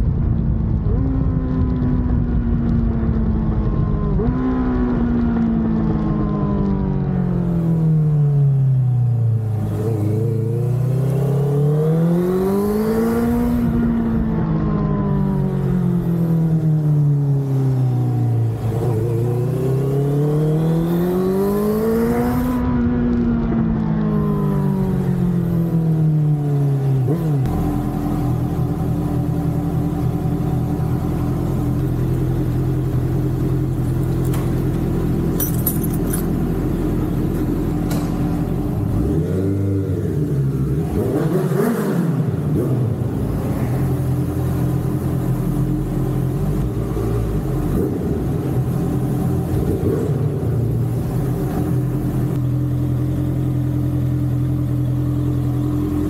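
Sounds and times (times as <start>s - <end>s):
motorcycle engine revving: 6.8s - 56.0s.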